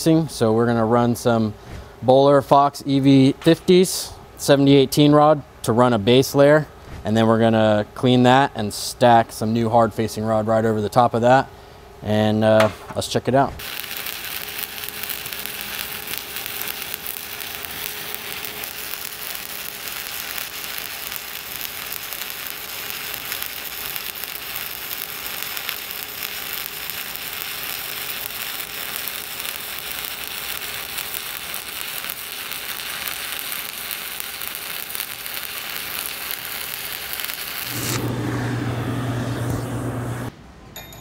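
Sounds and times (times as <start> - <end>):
welding arc crackling and sizzling: 13.6 - 40.3.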